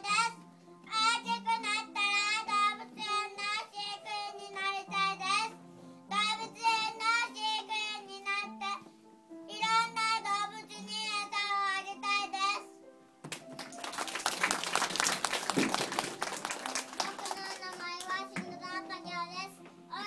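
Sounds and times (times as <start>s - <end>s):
audience applause: 13.3s - 18.1s.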